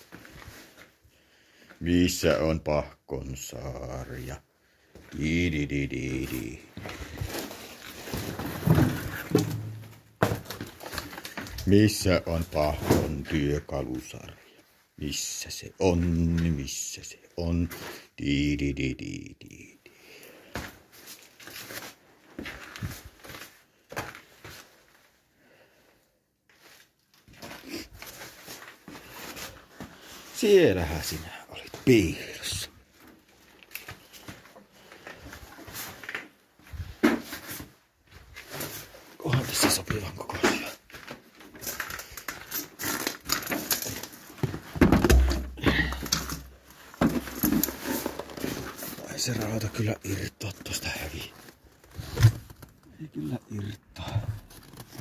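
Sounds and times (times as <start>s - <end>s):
person rummaging and handling things: 0.0s - 1.1s, 4.9s - 15.0s, 20.1s - 25.3s, 26.4s - 55.0s
footstep stepping out: 44.4s - 47.7s.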